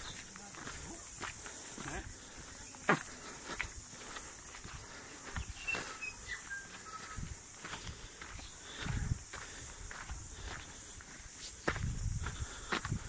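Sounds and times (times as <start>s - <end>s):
footsteps on dirt track: 0.0s - 13.0s
short bird whistles: 5.6s - 7.2s.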